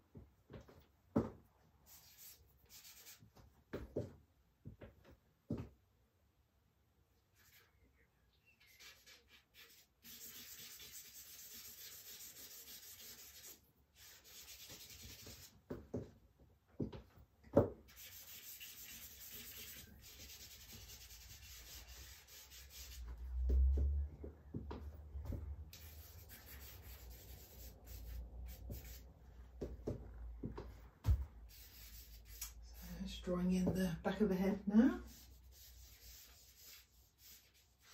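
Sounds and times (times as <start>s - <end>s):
charcoal rubbing on paper: 1.9s - 3.3s, 8.6s - 15.6s, 17.9s - 23.1s, 25.7s - 29.1s, 31.5s - 33.1s, 35.0s - 37.9s.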